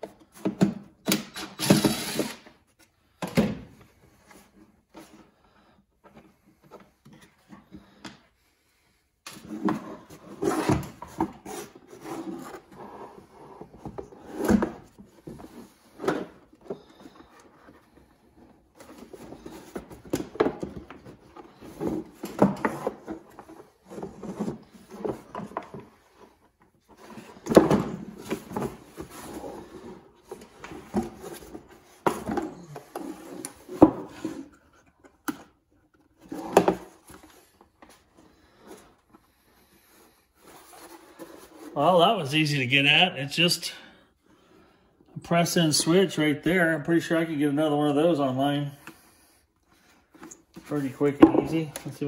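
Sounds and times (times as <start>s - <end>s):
plastic parts knocking and scraping: 9.3s - 39.2s.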